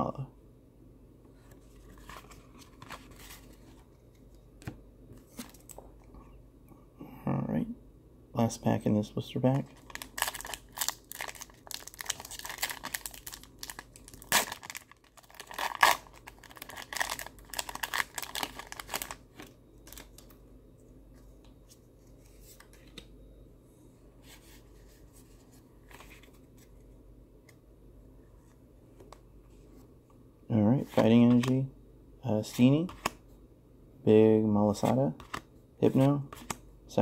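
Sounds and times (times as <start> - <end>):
cards rustling: 9.7 - 20.3, 30.9 - 31.7
foil wrapper tearing and crinkling: 9.8 - 19.2.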